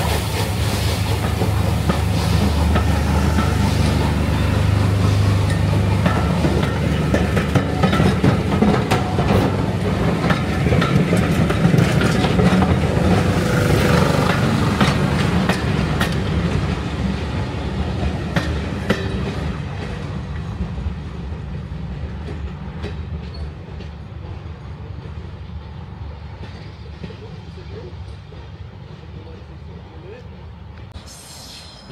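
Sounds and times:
train coaches rumbling past: 0.0s - 31.9s
wheels clicking over rail joints: 1.1s - 16.9s.

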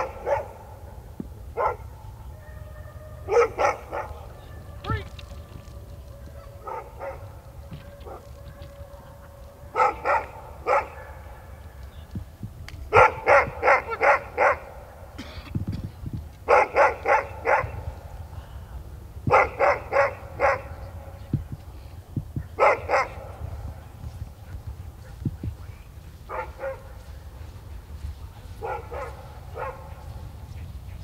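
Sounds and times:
dog barking: 0.0s - 0.8s, 1.5s - 5.0s, 6.2s - 11.6s, 12.9s - 15.0s, 16.5s - 17.9s, 19.3s - 21.1s, 22.6s - 23.5s, 26.3s - 27.1s, 28.4s - 31.0s.

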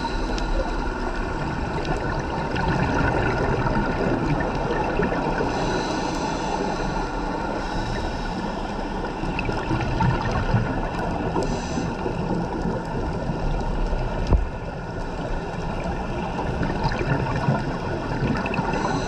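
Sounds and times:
rushing bubbling water: 0.0s - 19.0s
faint ticks: 10.9s - 15.9s.

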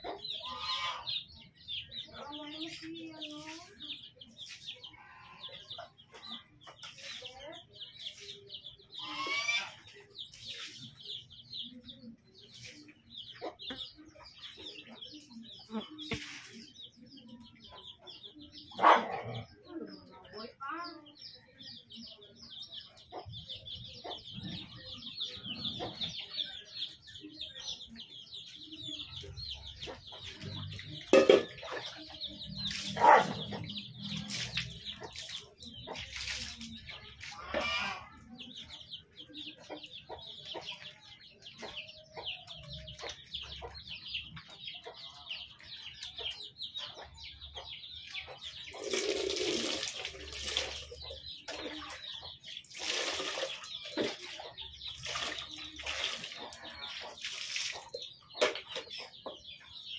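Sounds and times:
hen clucking: 0.0s - 3.5s, 8.3s - 12.1s, 28.6s - 52.9s
chicks peeping: 0.0s - 59.9s.

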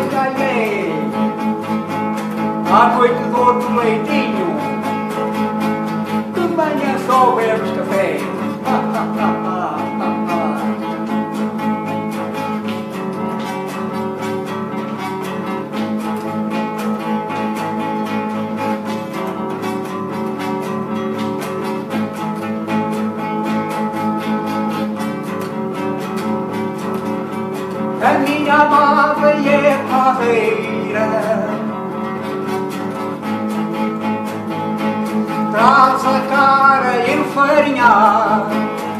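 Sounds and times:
elderly man singing: 0.0s - 1.4s, 2.6s - 5.2s, 6.3s - 11.3s, 28.0s - 31.8s, 35.5s - 38.9s
acoustic guitar strumming: 0.0s - 38.9s.

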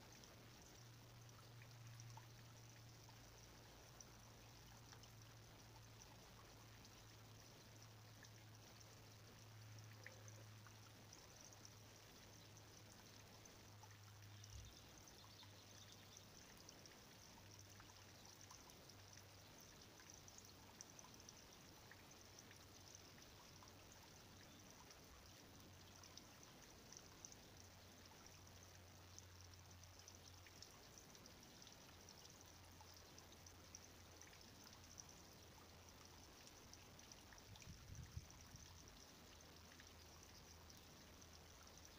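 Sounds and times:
faint steady hiss: 0.0s - 41.9s
faint ticks: 0.0s - 41.9s.

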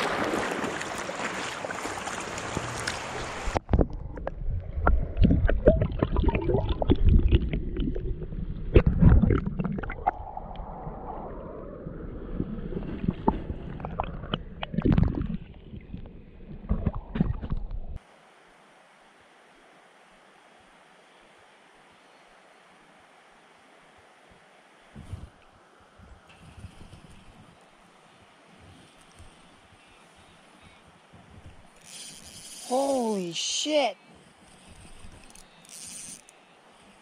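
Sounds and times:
creek water rushing over stones: 0.0s - 3.7s
small underwater clicks and knocks: 13.1s - 18.0s, 34.3s - 36.4s.

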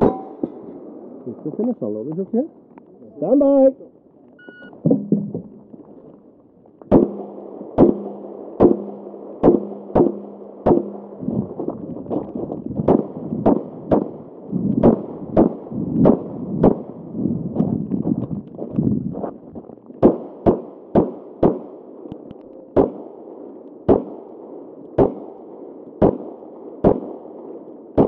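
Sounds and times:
shot timer beep: 4.4s - 4.8s
pistol shots: 6.9s - 11.3s, 12.8s - 17.0s, 20.0s - 22.1s, 22.7s - 28.0s.

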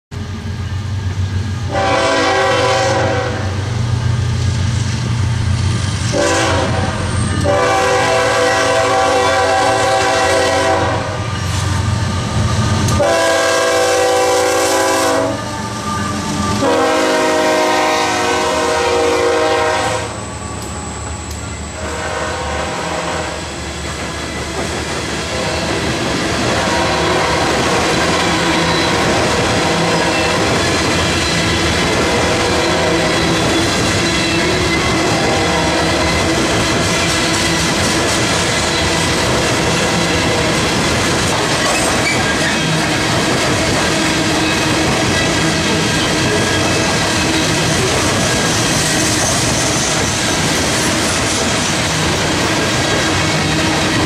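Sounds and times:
train air horn blasts: 1.6s - 3.6s, 6.1s - 21.0s, 21.6s - 23.6s, 25.3s - 25.8s, 26.6s - 30.6s, 32.0s - 33.6s, 34.2s - 36.4s
train wheels clattering on rails: 23.6s - 54.0s.

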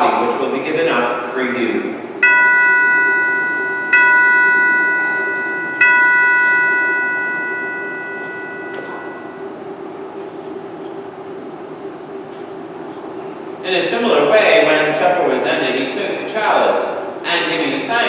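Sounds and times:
altar bell ringing: 2.2s - 9.5s.

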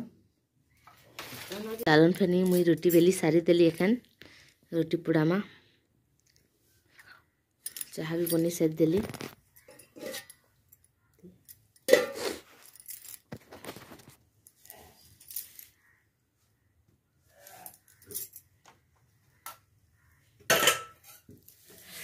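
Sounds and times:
metal utensils clinking: 9.6s - 10.4s, 11.8s - 13.2s, 20.5s - 21.3s.

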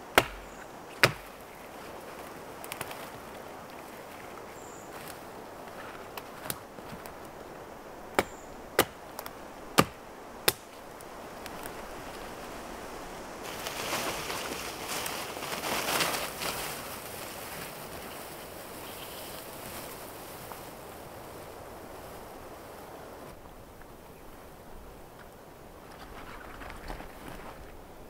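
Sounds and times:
dry branches snapping: 0.0s - 4.3s, 4.9s - 7.4s, 8.1s - 12.4s, 13.4s - 17.9s
rustling through undergrowth: 0.0s - 28.0s.

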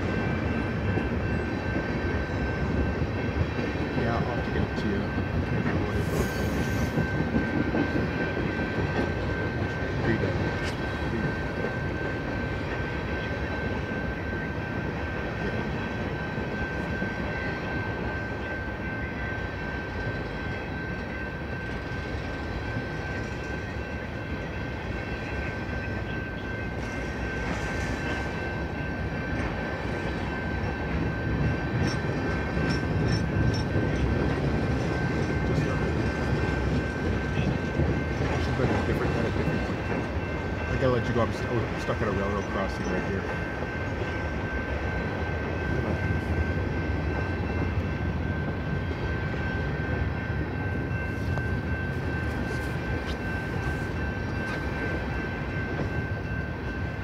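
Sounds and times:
train wheels clattering on rail: 0.0s - 57.0s.

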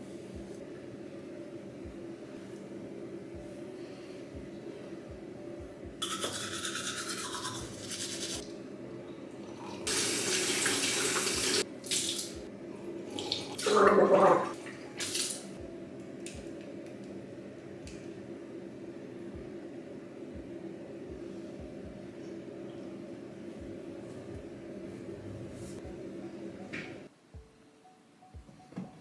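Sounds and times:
toothbrush scrubbing teeth: 6.0s - 8.4s.

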